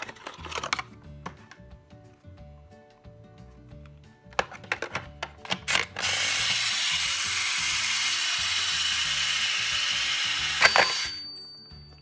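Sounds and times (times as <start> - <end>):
toy toaster electronic hiss: 6.0 - 11.2.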